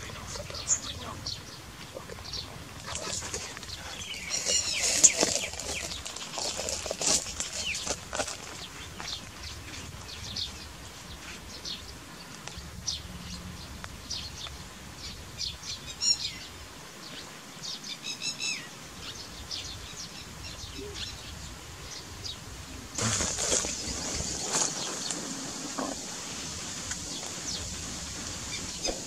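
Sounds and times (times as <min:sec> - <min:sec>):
lapwing calling: 0:00.0 - 0:12.1, 0:17.9 - 0:29.0.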